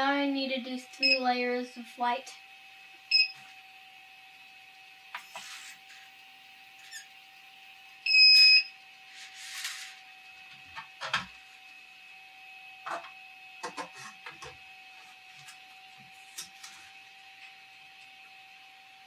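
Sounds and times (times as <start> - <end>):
printer buzzer beep: 1.0 - 1.2, 3.1 - 3.4, 8.0 - 8.8.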